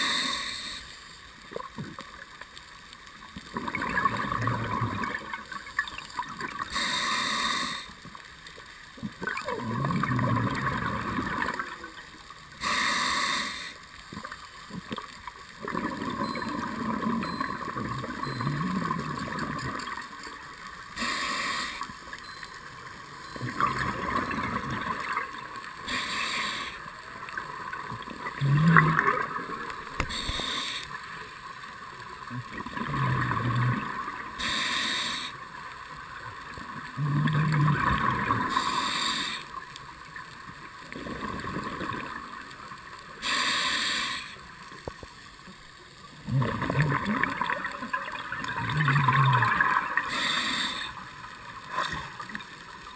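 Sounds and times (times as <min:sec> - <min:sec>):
diver inhaling through regulator: 0:00.0 - 0:00.9, 0:06.7 - 0:08.0, 0:12.6 - 0:13.8, 0:21.0 - 0:21.9, 0:25.8 - 0:26.8, 0:30.0 - 0:31.0, 0:34.4 - 0:35.4, 0:38.4 - 0:39.5, 0:43.2 - 0:44.4, 0:50.0 - 0:51.1.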